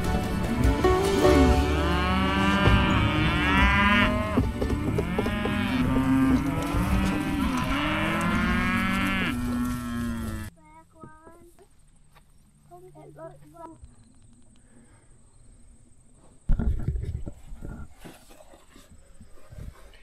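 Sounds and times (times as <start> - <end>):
cattle mooing and bellowing: 0.4 - 10.5.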